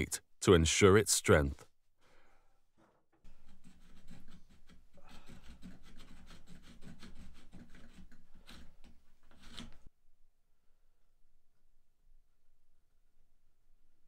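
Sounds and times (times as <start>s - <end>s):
hand file rasping on wood: 3.3s - 9.9s.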